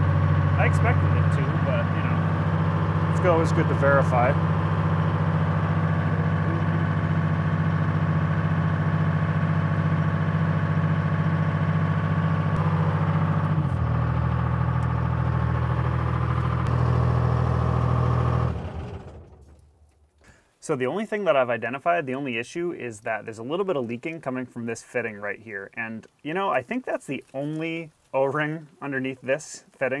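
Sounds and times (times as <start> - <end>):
backhoe engine running: 0.0 - 20.2.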